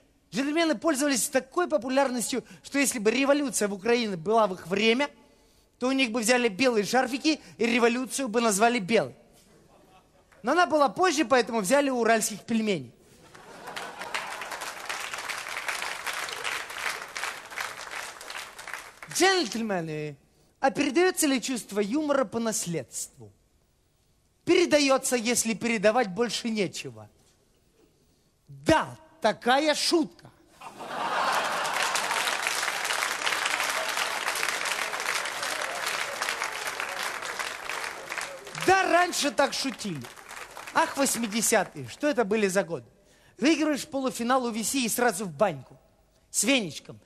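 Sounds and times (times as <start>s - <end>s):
audience applauding: 13.3s - 19.2s, 30.7s - 41.6s.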